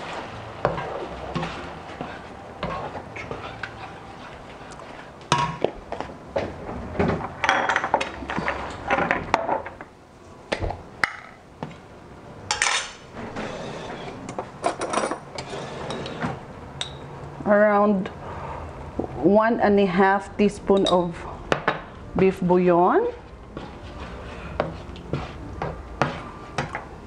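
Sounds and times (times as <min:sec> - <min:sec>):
spatula scraping frying pan: 0:00.0 - 0:05.4, 0:13.2 - 0:14.3, 0:15.3 - 0:16.5, 0:23.0 - 0:26.8
kitchen utensils clinking: 0:12.5 - 0:17.1.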